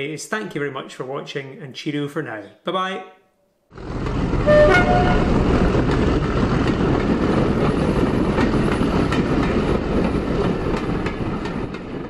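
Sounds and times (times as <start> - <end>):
train rumbling on track: 3.8 - 12.0
wheels clicking over rail joints: 3.8 - 12.0.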